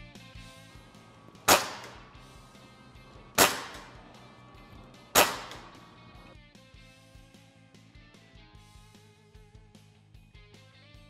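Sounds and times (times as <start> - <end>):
air rifle shots: 1.3 - 6.2.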